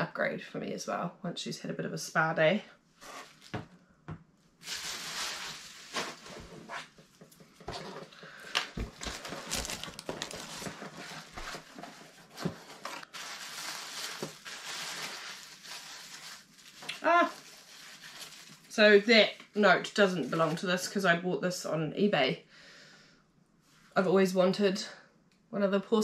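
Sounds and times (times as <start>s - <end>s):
hand digging through packing peanuts: 4.6s - 6.4s, 8.9s - 18.8s
plastic packaging crinkling: 4.6s - 6.7s, 8.5s - 19.1s.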